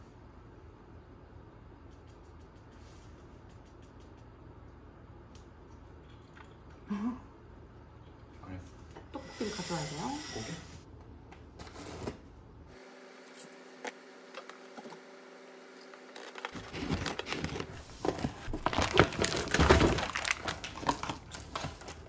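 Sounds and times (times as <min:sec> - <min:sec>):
faint hum: 0:00.0 - 0:22.0
plastic packaging crinkling and tearing: 0:16.0 - 0:22.0.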